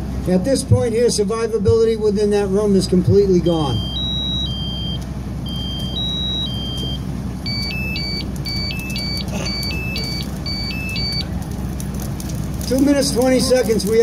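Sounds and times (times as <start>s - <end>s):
steady low rumble: 0.0s - 14.0s
smoke alarm beeping: 3.6s - 11.3s.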